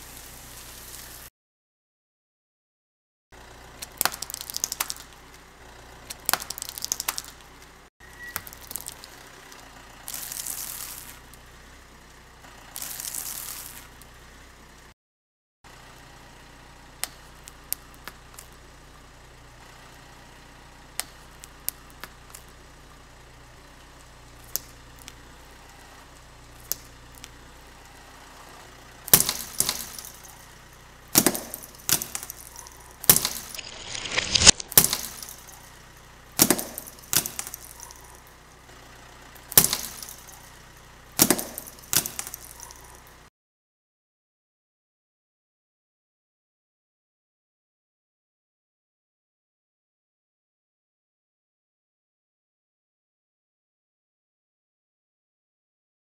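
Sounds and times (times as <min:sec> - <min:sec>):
crunching: 0:03.7 - 0:11.4, 0:12.5 - 0:14.1, 0:24.4 - 0:38.4, 0:39.4 - 0:43.2
plastic cracking under tyre: 0:03.8 - 0:05.4, 0:06.0 - 0:07.8, 0:08.4 - 0:11.4, 0:12.8 - 0:14.0, 0:29.1 - 0:30.4, 0:31.2 - 0:35.7, 0:36.4 - 0:38.2, 0:39.5 - 0:40.4.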